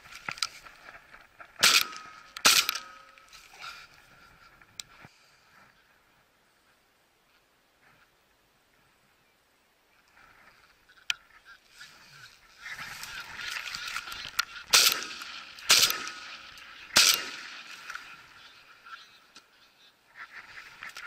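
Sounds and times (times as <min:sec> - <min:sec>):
shotgun shots: 0:01.6 - 0:03.0, 0:14.7 - 0:17.9.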